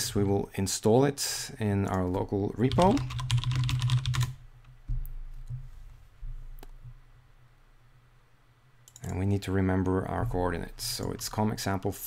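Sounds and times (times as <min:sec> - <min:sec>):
steady low hum: 0:00.0 - 0:12.0
typing on computer keyboard: 0:02.7 - 0:04.4.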